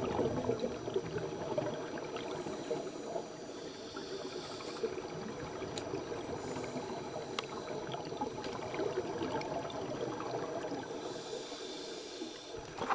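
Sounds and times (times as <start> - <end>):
underwater air bubbles rushing: 0.0 - 3.5, 4.4 - 10.9, 12.6 - 12.9.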